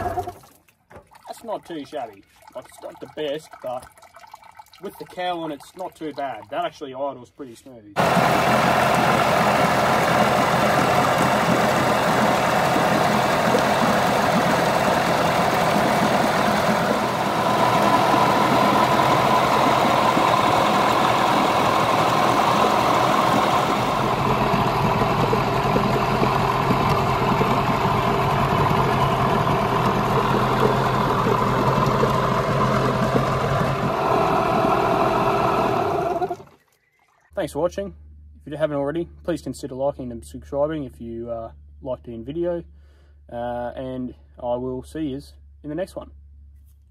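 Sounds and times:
outboard motor idling: 0:08.0 - 0:36.7.

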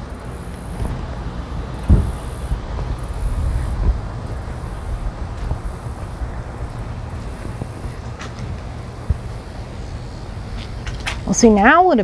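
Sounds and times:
wind buffeting microphone: 0:00.0 - 0:12.0
dull thump: 0:00.8 - 0:09.6.

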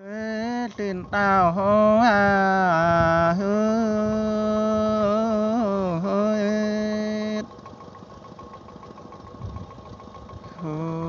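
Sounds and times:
person singing a long note: 0:10.6 - 0:11.0.

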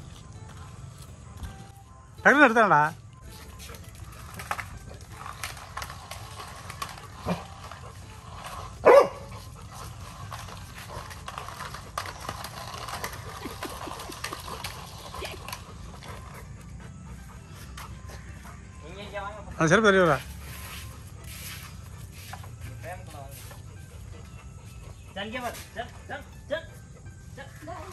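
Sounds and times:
puppy barking: 0:08.8 - 0:09.6.

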